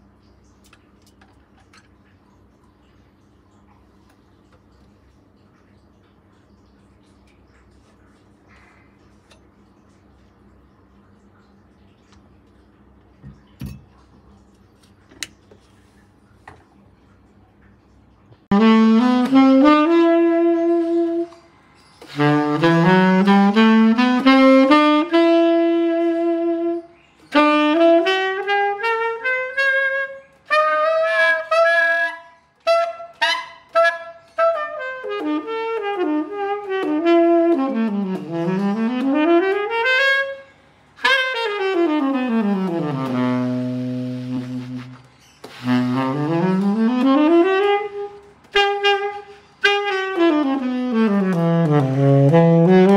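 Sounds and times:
tenor saxophone solo: 18.5 - 52.9.

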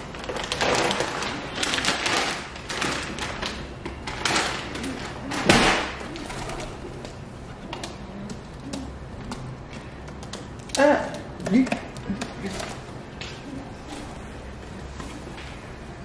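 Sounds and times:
pigeon wings flapping: 0.2 - 14.2
feet and beaks tapping metal: 7.0 - 14.0.

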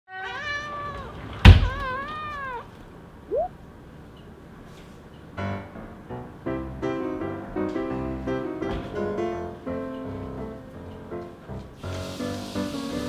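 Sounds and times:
cat meowing: 0.1 - 2.7
piano music: 5.4 - 13.0.

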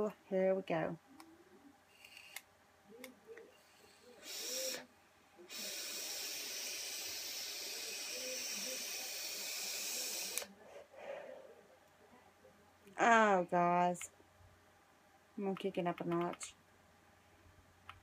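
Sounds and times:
vape draw hissing: 3.6 - 4.9, 5.5 - 10.5
breath exhaling: 3.7 - 4.9, 5.5 - 11.6.

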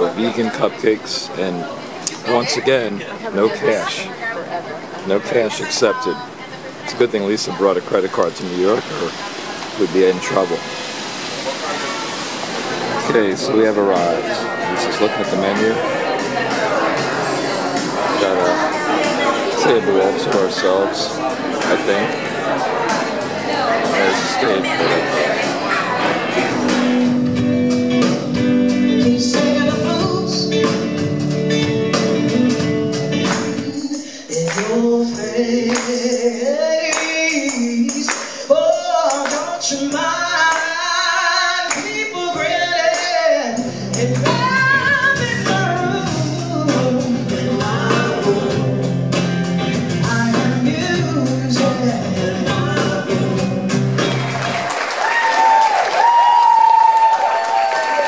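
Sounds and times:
electric guitar: 10.6 - 36.2, 41.7 - 54.8
bass guitar: 13.0 - 33.8, 43.6 - 54.6
woman singing: 33.5 - 48.8.

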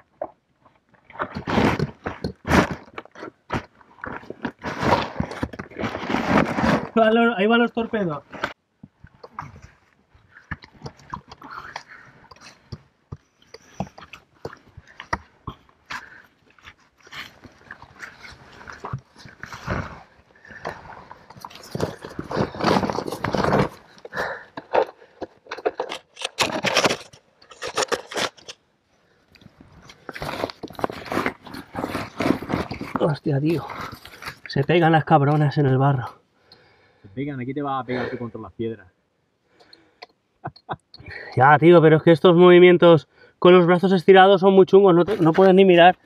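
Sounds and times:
scraping and crunching against rock: 0.2 - 7.2, 8.1 - 28.6, 29.4 - 35.0.

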